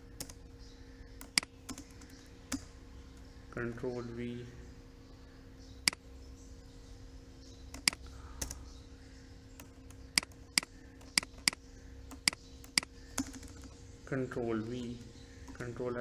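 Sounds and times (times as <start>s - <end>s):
faint electrical hum: 0.0s - 16.0s
keyboard and mouse clicks: 1.2s - 3.2s, 7.7s - 8.6s, 9.6s - 13.8s.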